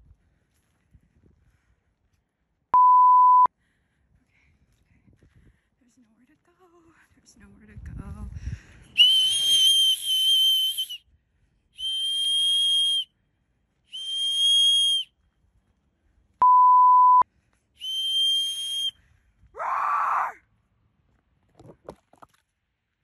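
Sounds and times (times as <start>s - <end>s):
electronic bleep: 2.8s - 3.5s, 16.4s - 17.2s
shrill whistle blasts: 9.0s - 11.0s, 11.8s - 13.1s, 13.9s - 15.1s, 17.8s - 19.0s.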